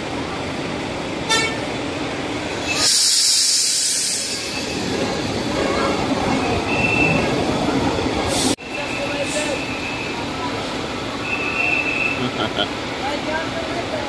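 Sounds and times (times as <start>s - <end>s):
wet street traffic: 0.0s - 14.0s
bus air brakes hissing: 2.4s - 5.9s, 8.2s - 12.3s.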